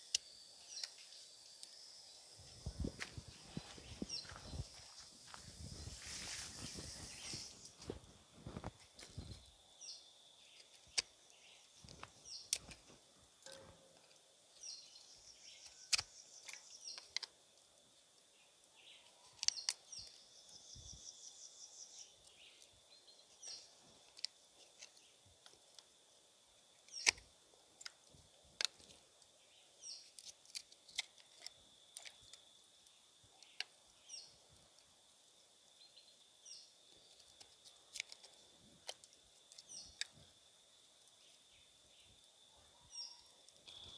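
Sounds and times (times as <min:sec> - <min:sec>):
birds chirping: 0:00.5 - 0:08.0.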